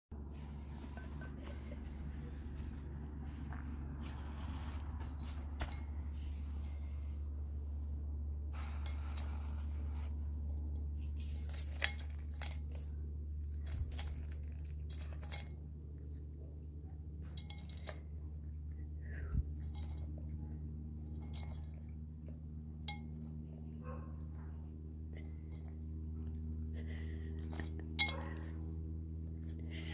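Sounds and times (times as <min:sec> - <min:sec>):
steady low hum: 0:00.1 - 0:29.9
peanuts crunching: 0:08.7 - 0:16.2.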